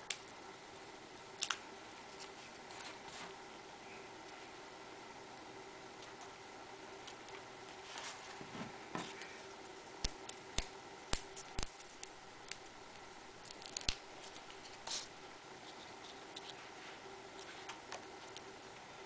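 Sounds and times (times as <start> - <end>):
faint steady hum: 0.0 - 19.0
soft paper rustle: 2.1 - 3.4.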